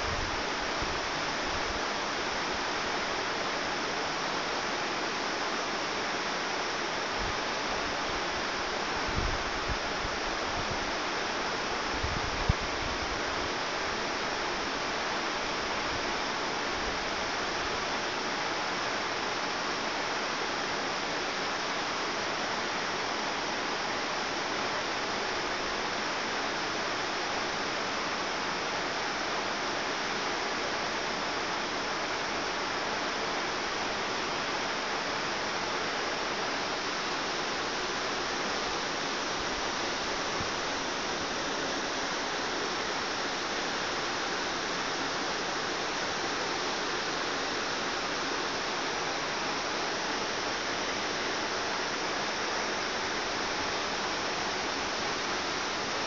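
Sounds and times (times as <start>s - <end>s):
stream flowing: 13.1s - 56.0s.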